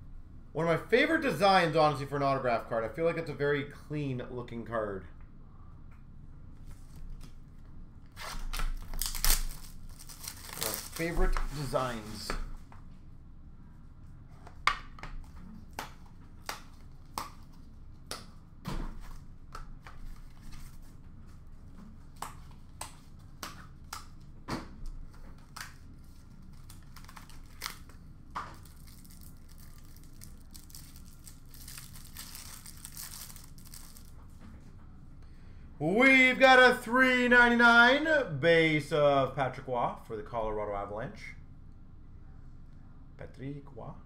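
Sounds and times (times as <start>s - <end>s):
foil wrapper crinkling torn open: 8.2s - 12.2s, 25.4s - 34.2s.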